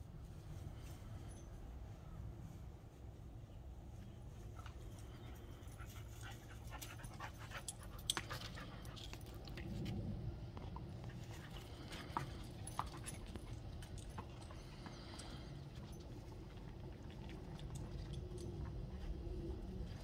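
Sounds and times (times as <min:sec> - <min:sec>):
dogs panting: 0:04.5 - 0:09.6, 0:10.6 - 0:20.0.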